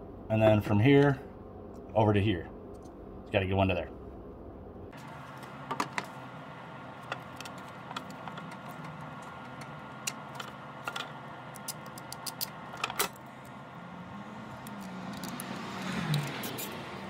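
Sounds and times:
clicks and knocks of plastic parts: 0:07.0 - 0:13.2.

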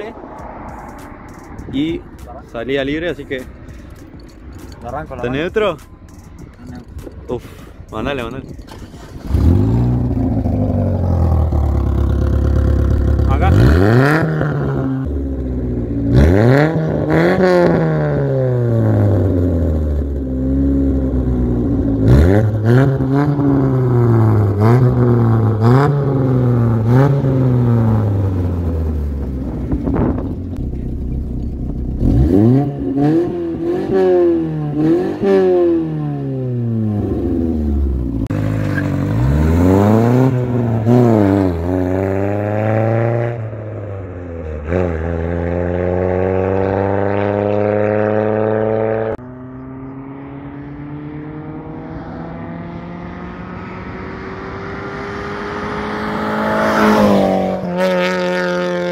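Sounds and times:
car engine revving: 0:00.0 - 0:58.9.

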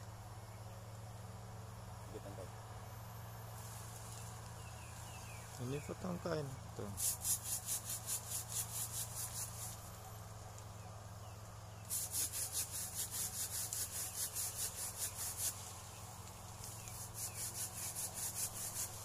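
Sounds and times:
hand saw cutting a branch: 0:06.8 - 0:10.0, 0:11.7 - 0:19.0.

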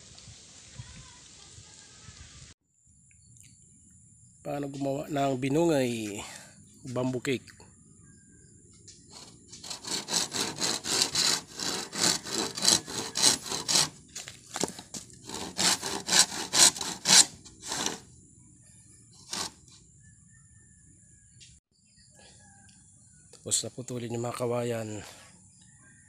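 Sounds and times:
hand saw cutting bamboo: 0:09.1 - 0:18.1, 0:19.2 - 0:19.6.

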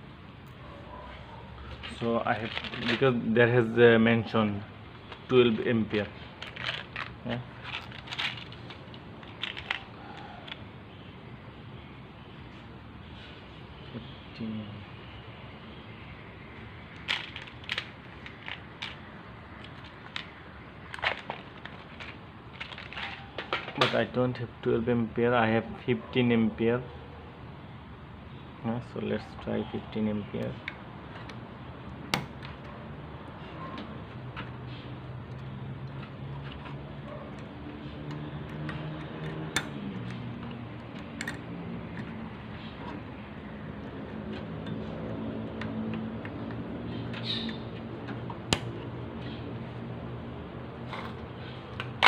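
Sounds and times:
plastic parts tapping: 0:01.8 - 0:03.1, 0:06.4 - 0:10.6, 0:16.9 - 0:24.0
fuses clicking in plastic box: 0:06.4 - 0:10.6
clicks of wire connectors: 0:35.2 - 0:43.1.

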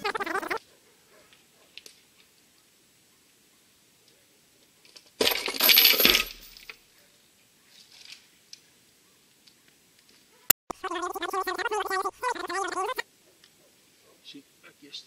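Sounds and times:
steel chain clattering: 0:05.2 - 0:06.7.

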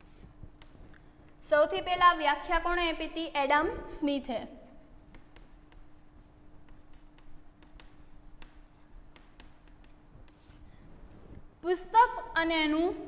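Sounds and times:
chalk tapping on a blackboard: 0:00.0 - 0:01.0, 0:04.8 - 0:10.6
faint steady hum: 0:00.0 - 0:13.0.

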